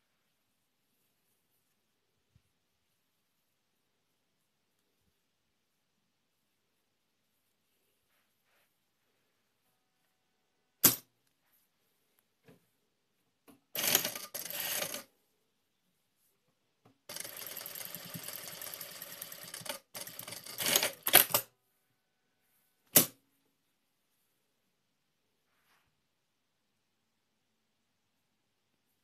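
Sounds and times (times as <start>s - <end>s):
sewing machine stitching: 13.8s - 15.1s, 17.1s - 21.5s.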